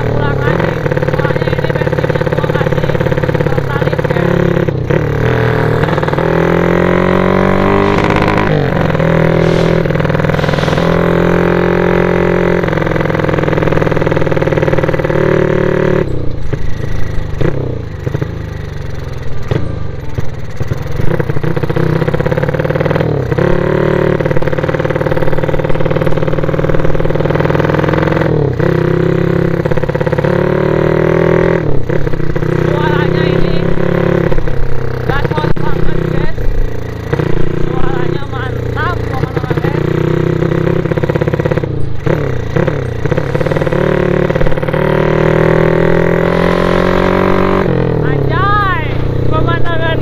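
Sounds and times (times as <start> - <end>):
small motorcycle engine running: 0.0 - 50.0.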